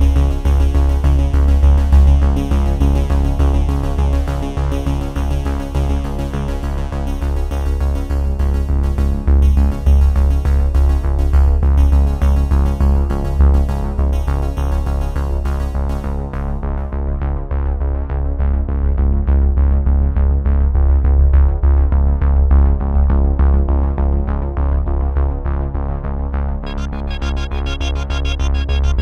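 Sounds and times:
synthesizer and keyboard music: 0:26.6 - 0:29.0.

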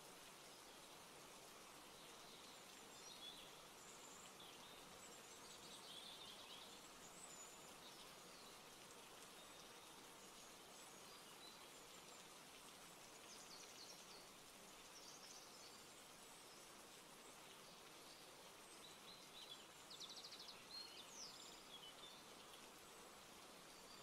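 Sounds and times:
faint background hiss: 0:00.0 - 0:24.0.

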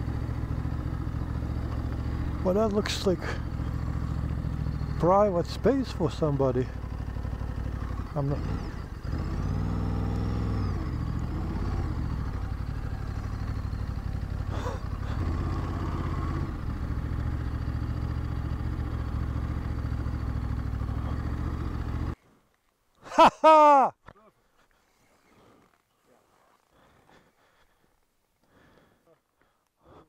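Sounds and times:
motorcycle engine running: 0:00.0 - 0:22.2.

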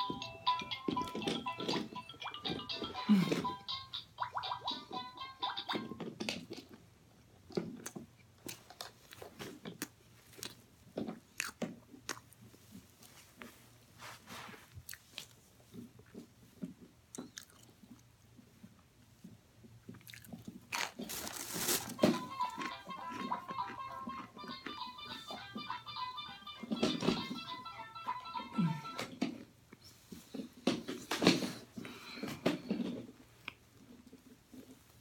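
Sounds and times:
crisp crunching bites: 0:20.0 - 0:22.0.

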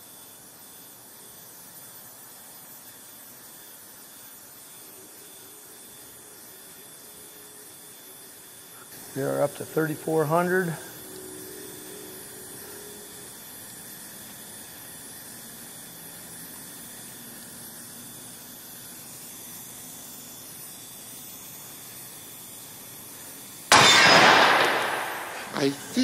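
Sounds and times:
faint hiss: 0:00.0 - 0:26.0
loud burst of machine breaking: 0:23.7 - 0:25.7.

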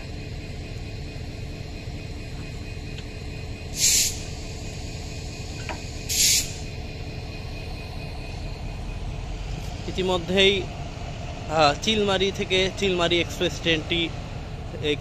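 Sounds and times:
compressed air hiss: 0:03.8 - 0:04.4, 0:06.1 - 0:06.6.

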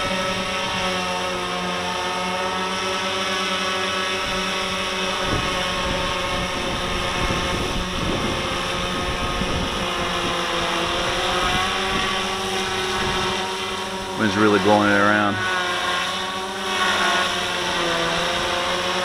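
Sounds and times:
drone propellers whirring: 0:00.0 - 0:19.0
wind rumbling on microphone: 0:04.2 - 0:15.6.

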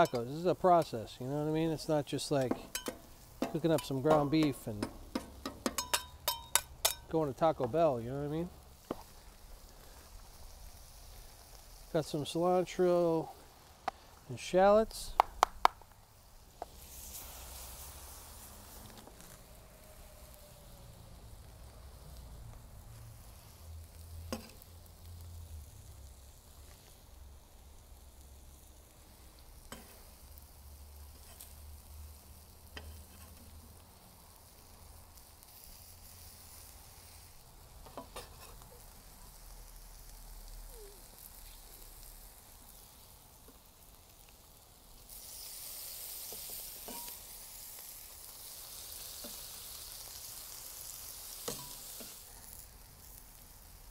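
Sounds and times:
metal spatula tapping steel: 0:00.0 - 0:00.3, 0:02.4 - 0:07.1
meat and tortillas sizzling on griddle: 0:00.0 - 0:53.9.

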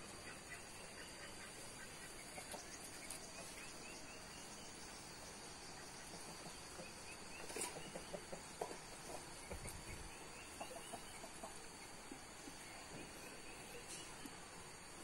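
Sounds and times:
chickens clucking: 0:00.0 - 0:04.6, 0:05.5 - 0:14.4
insect drone: 0:00.0 - 0:15.0.

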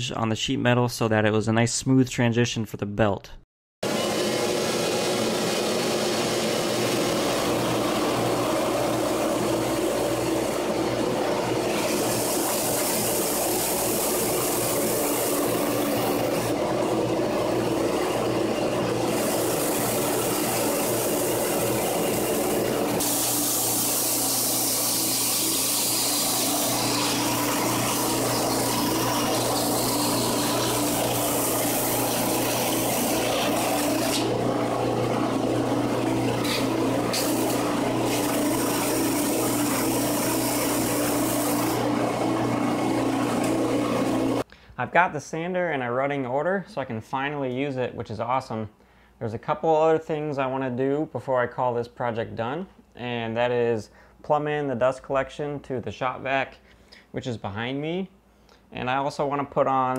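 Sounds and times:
belt sander motor running: 0:03.8 - 0:44.4
wood being sanded hiss: 0:11.9 - 0:16.5, 0:19.2 - 0:28.9.

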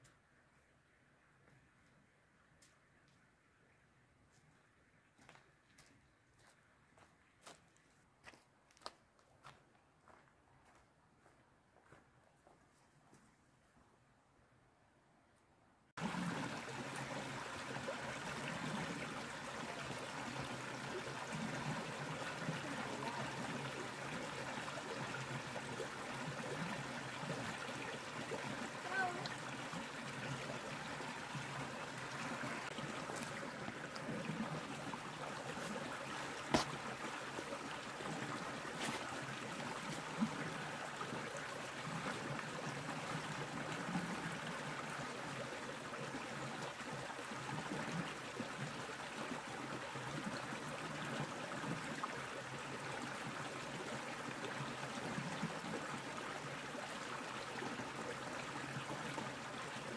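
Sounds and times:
stream flowing: 0:16.0 - 0:59.9.

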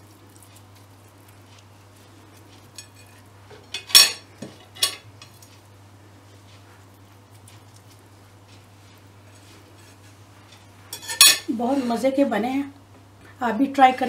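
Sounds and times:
metal skewers clanking on ceramic plate: 0:02.6 - 0:05.5, 0:09.4 - 0:11.5.

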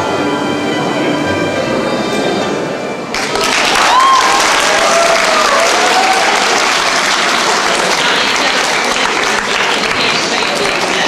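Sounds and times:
audience applauding in a hall: 0:03.1 - 0:11.0.

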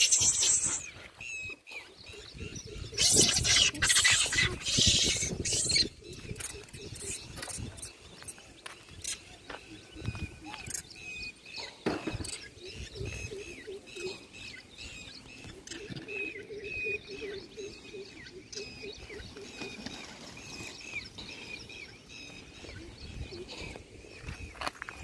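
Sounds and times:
monkeys rustling on gravel: 0:00.0 - 0:02.2, 0:19.0 - 0:22.7, 0:23.5 - 0:25.0
birds chirping: 0:00.0 - 0:25.0.

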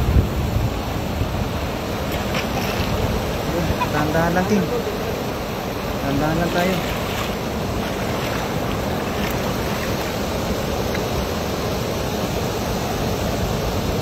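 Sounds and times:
rushing water: 0:00.0 - 0:14.0
wet net hauled through water: 0:01.7 - 0:04.0, 0:05.4 - 0:11.6.

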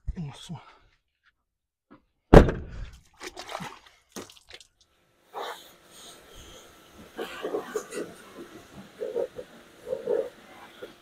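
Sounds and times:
car door slamming: 0:02.3 - 0:02.7.

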